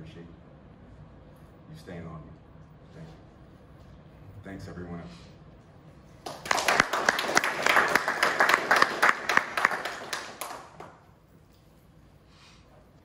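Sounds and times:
small group applauding: 0:06.2 - 0:11.2.

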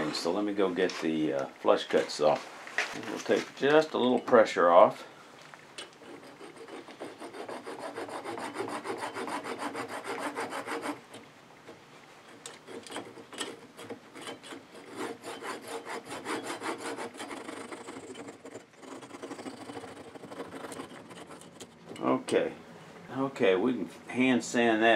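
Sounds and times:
hand saw cutting wood: 0:05.8 - 0:22.2.

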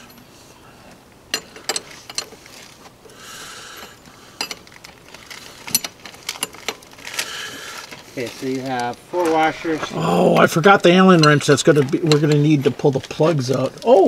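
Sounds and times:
wrenches clicking on metal nuts: 0:01.3 - 0:02.7, 0:03.6 - 0:09.4, 0:10.9 - 0:14.0
metal scraping: 0:08.2 - 0:11.9.

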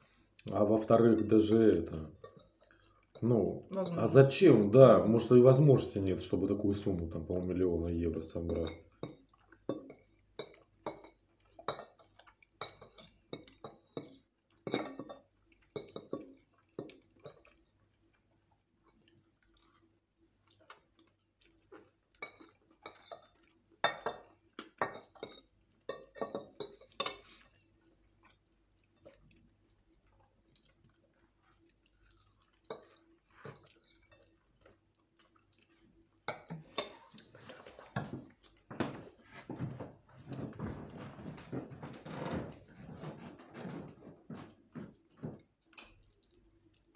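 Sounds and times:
chewing: 0:09.0 - 0:39.6, 0:45.0 - 0:46.9.

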